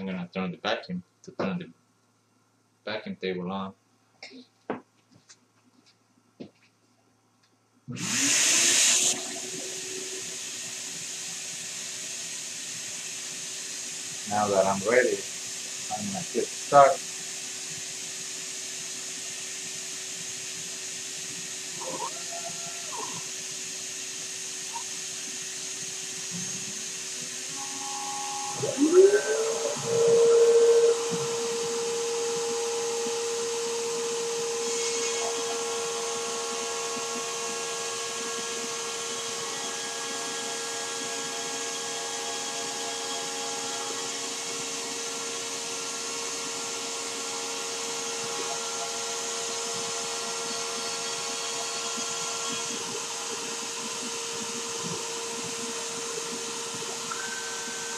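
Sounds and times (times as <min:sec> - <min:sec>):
router spindle whine: 0:07.9 - 0:57.9
machine steady tones: 0:12.7 - 0:57.9.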